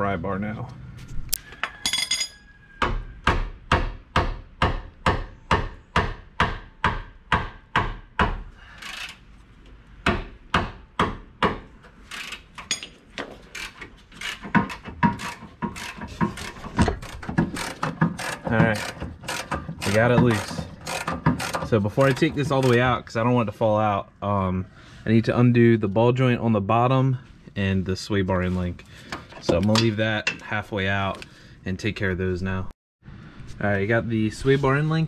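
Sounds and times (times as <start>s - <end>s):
metal tools knocking on bolt: 12.2s - 22.8s.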